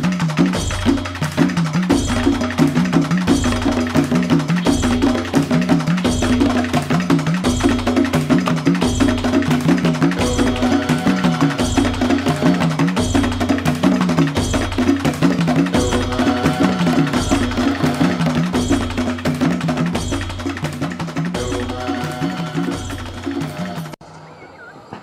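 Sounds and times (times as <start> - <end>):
percussion beat: 0.0 - 24.0.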